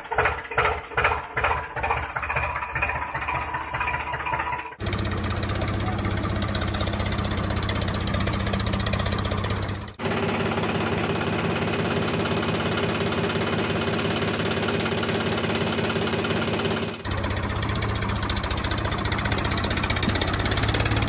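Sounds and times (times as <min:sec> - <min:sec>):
diesel tractor engine running: 0:00.0 - 0:21.0.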